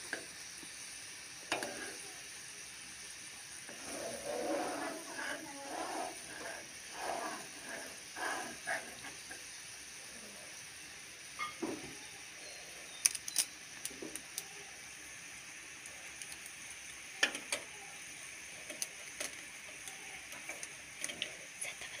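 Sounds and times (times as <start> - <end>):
rice boiling in saucepan: 0.0 - 22.0
sharp ticks and pops: 13.0 - 14.5, 16.2 - 17.7, 18.6 - 22.0.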